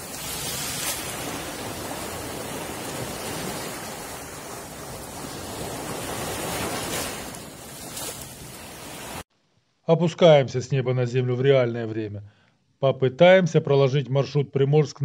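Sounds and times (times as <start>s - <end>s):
waves breaking on shore: 0.0s - 9.3s.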